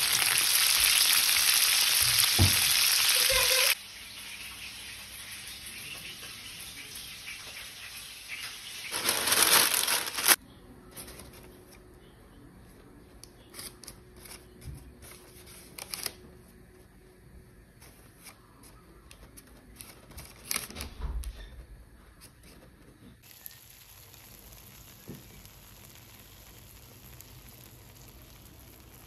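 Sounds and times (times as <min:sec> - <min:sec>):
baking parchment crinkling: 0:08.3 - 0:11.9, 0:13.3 - 0:16.6, 0:17.8 - 0:29.0.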